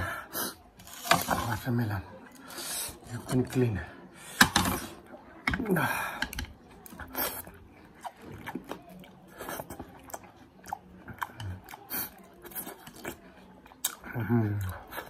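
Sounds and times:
person chewing watermelon: 6.7 - 15.0.

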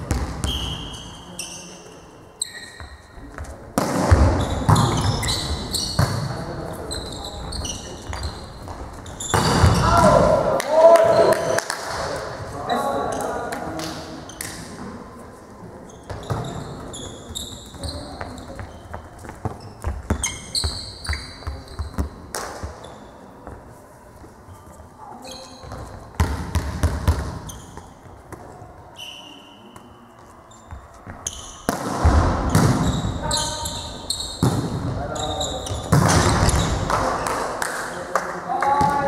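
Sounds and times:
sneakers squeaking: 0.0 - 10.2, 15.8 - 23.7, 24.5 - 37.3
voices echoing in a hall: 0.0 - 39.0
ball bouncing on hard floor: 2.8 - 5.3, 8.0 - 10.1, 25.6 - 28.4, 31.1 - 33.1, 35.8 - 37.2.

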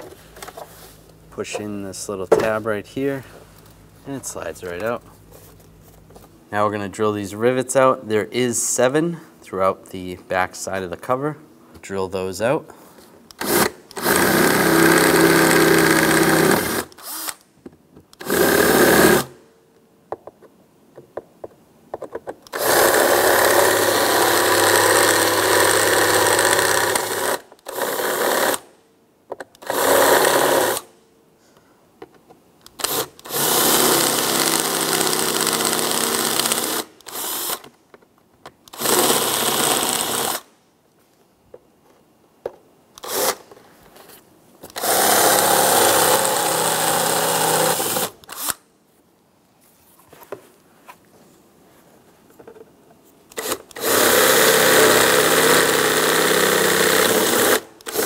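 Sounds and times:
power drill drilling out rivets: 13.4 - 17.4, 18.2 - 19.4, 22.4 - 28.7, 29.6 - 30.9, 32.7 - 37.7, 38.7 - 40.5, 43.0 - 43.5, 44.7 - 48.6, 53.3 - 58.0.

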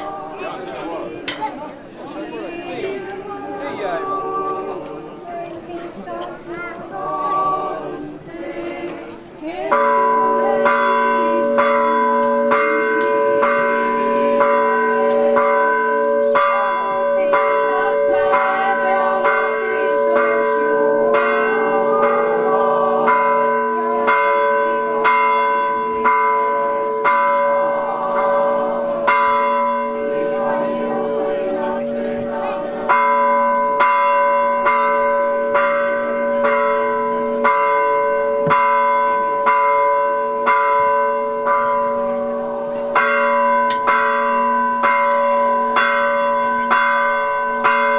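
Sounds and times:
higher church bells striking: 0.0 - 47.9
deep bells ringing: 2.5 - 47.9.

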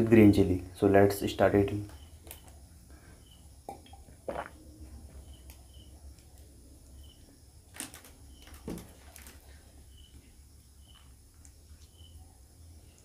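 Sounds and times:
person swallowing: 3.7 - 4.6.

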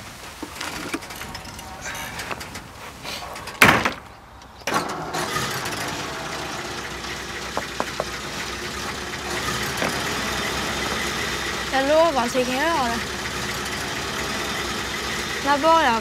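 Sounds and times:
car engine starting and idling: 0.0 - 16.0
car door slamming: 3.5 - 4.1.

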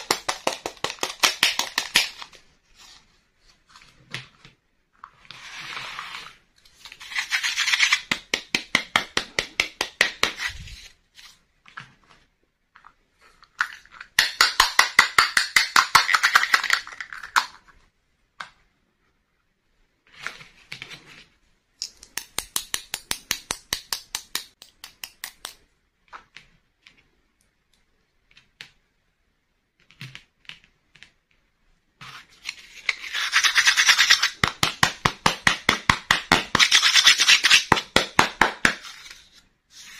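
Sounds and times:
fingers rubbing plastic toy pieces: 6.9 - 10.8, 32.0 - 39.9.

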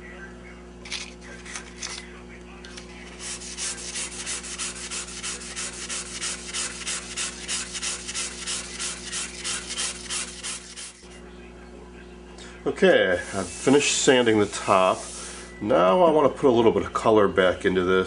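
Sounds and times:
sandpaper rubbing on wood: 3.1 - 11.0, 13.2 - 15.3.

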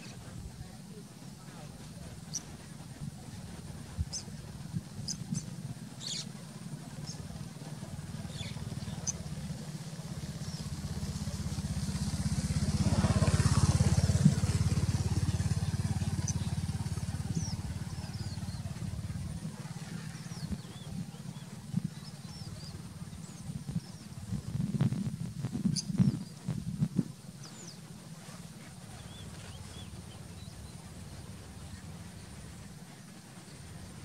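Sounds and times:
engine drone passing by: 1.6 - 25.4, 27.5 - 34.0
bird chirps: 5.0 - 6.3.

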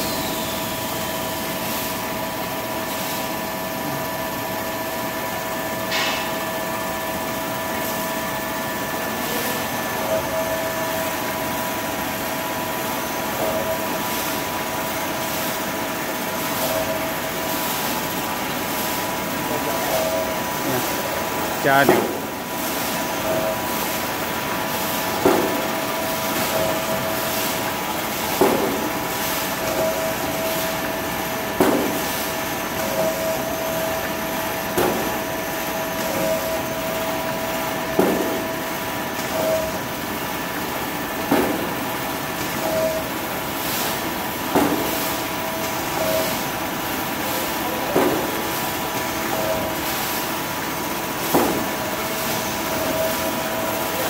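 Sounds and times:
cutting machine hum and whine: 0.0 - 54.0
machine knocking: 23.1 - 30.8, 37.7 - 39.9, 47.5 - 49.8.

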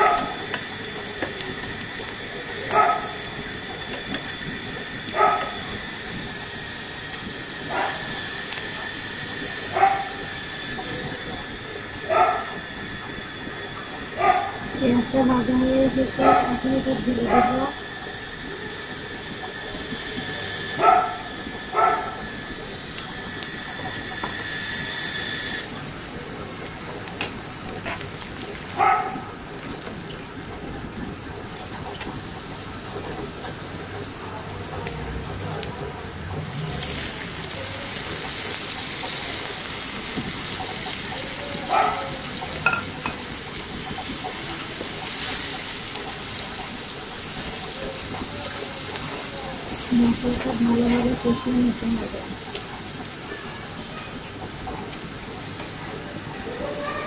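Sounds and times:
onions sizzling in oil: 0.0 - 57.0
spatula knocking against pan: 42.6 - 43.2.

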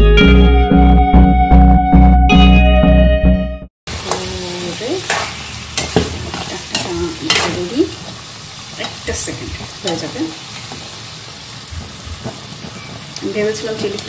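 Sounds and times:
low steady sizzle: 3.9 - 14.0
metal spoon scraping pan: 5.0 - 7.9.

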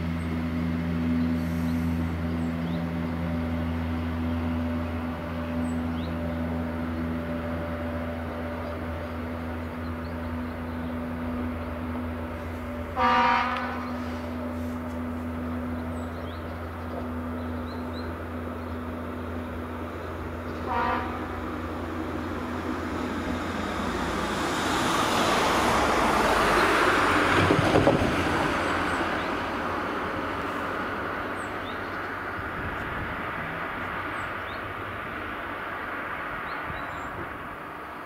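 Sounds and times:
truck driving past: 0.0 - 38.0
train horn toot: 12.9 - 14.2, 20.6 - 21.5.

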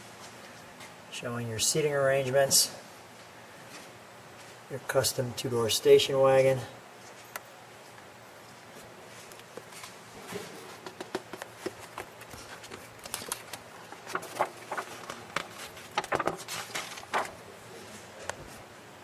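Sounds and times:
paper pages rustling and crinkling: 8.5 - 18.6.

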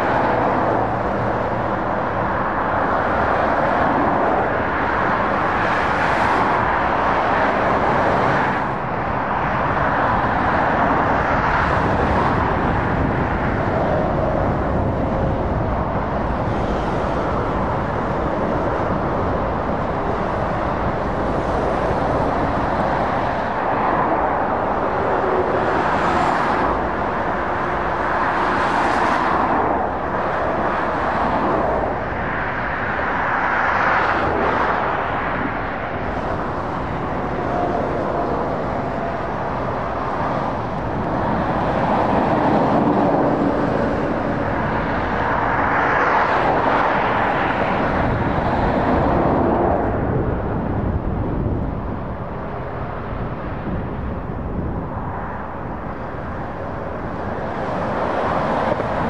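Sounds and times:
road traffic passing: 0.0 - 59.0.

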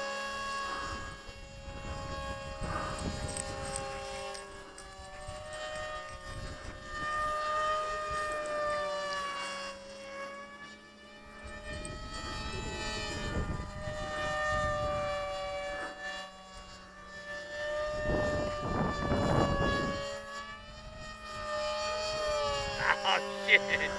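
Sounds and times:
model plane motors whining: 0.0 - 23.9
wind buffeting microphone: 0.8 - 8.8, 11.4 - 15.8, 17.7 - 22.8.

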